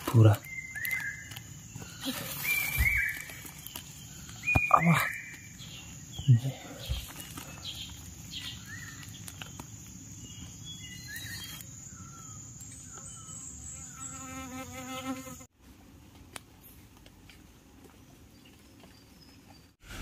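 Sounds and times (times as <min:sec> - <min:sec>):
insects droning: 0:00.0 - 0:15.5.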